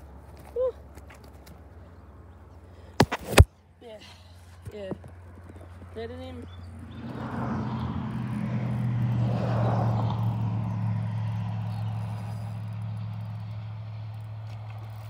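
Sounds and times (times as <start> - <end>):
vehicle engine hum passing by: 5.1 - 15.0.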